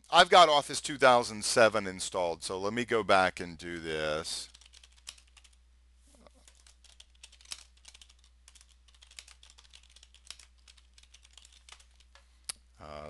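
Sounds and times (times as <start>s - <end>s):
typing on computer keyboard: 4.5s - 5.6s, 6.4s - 12.2s.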